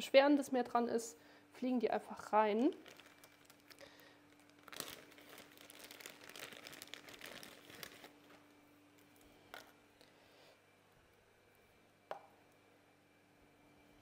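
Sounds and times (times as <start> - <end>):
plastic bags crinkling: 2.5 - 9.8.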